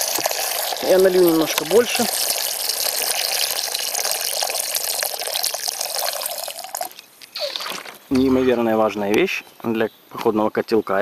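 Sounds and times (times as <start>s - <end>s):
water pouring into a metal pot: 0.0s - 8.1s.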